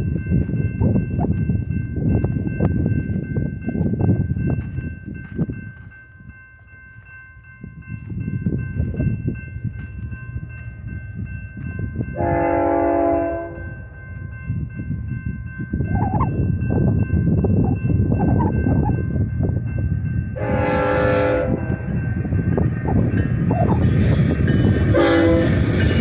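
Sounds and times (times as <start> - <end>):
gusty low rumbling: 0.0 - 6.4, 7.4 - 26.0
locomotive air horn blast: 12.2 - 13.7, 20.4 - 21.7, 24.9 - 25.6.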